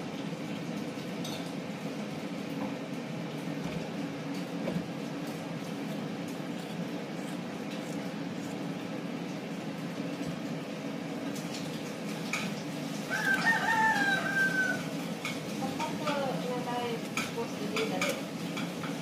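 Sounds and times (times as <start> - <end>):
low background hum: 0.0 - 19.0
rooster crowing: 13.0 - 15.1.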